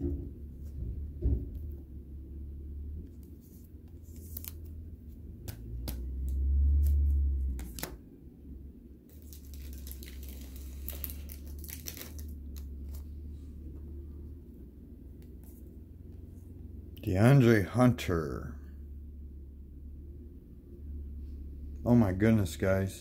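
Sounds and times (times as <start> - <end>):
cards clicking and rustling: 3.1 - 8.0, 9.1 - 13.1
foil wrapper tearing and crinkling: 9.1 - 13.0.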